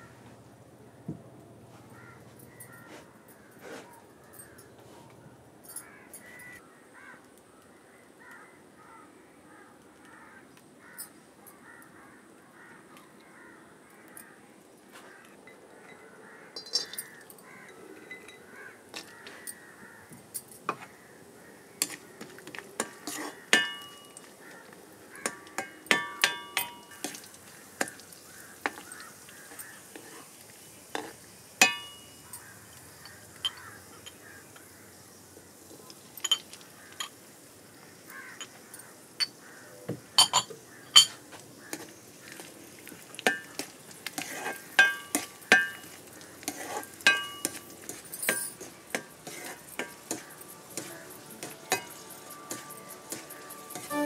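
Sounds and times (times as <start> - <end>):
crows cawing: 1.8 - 30.2, 32.2 - 35.6, 36.6 - 37.1, 37.8 - 39.9
kitchen utensils clinking: 16.6 - 19.6, 22.8 - 24.3, 25.1 - 28.0, 30.9 - 34.6, 36.1 - 37.2, 40.1 - 41.2, 43.1 - 54.0
nuts dropping into iron pan: 16.6 - 19.7, 40.2 - 54.0.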